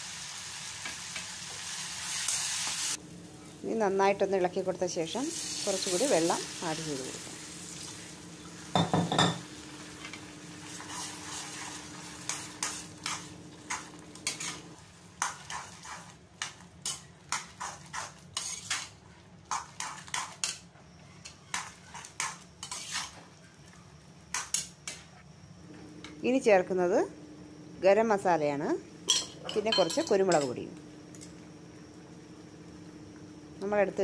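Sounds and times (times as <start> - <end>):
faint frying sizzle: 0.0 - 34.0
metal spatula scraping a pan: 10.6 - 16.2, 16.8 - 20.6, 21.2 - 23.2.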